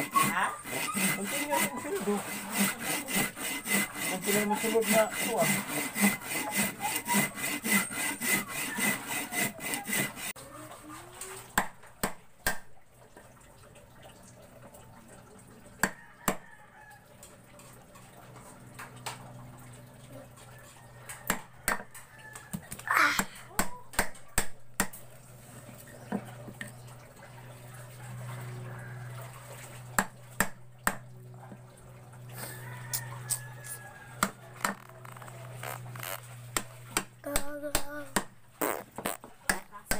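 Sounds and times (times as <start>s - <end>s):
hand saw cutting wood: 0.0s - 10.4s, 32.4s - 39.9s.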